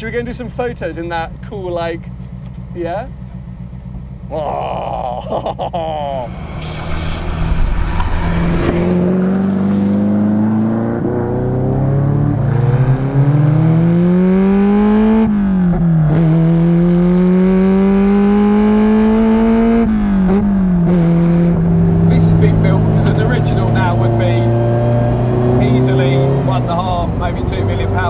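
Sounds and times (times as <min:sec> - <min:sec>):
car engine accelerating hard: 0:05.7 - 0:28.0.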